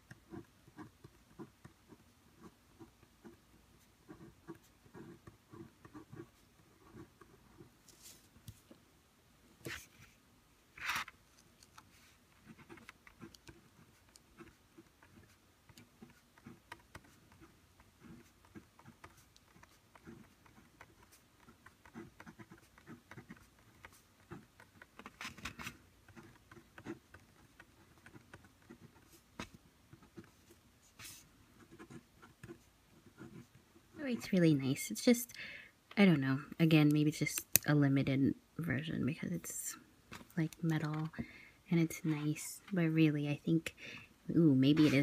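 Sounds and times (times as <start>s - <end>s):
pen scratching on paper: 0.1s - 7.7s, 11.9s - 25.2s, 26.1s - 33.6s.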